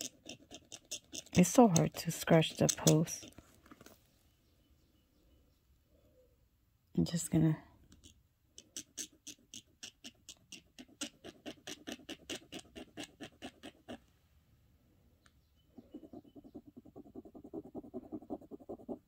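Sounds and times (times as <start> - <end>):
metal scratching on stone: 0.0 - 3.4.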